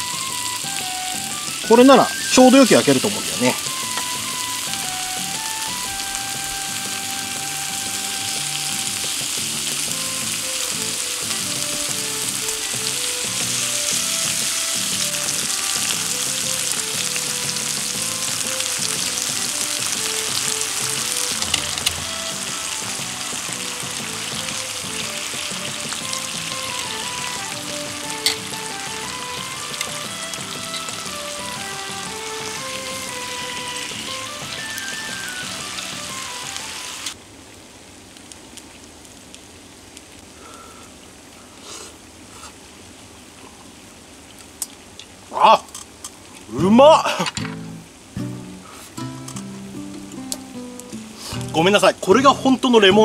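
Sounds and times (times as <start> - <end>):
beef sizzling on a griddle: 0.0 - 37.2, 48.2 - 53.0.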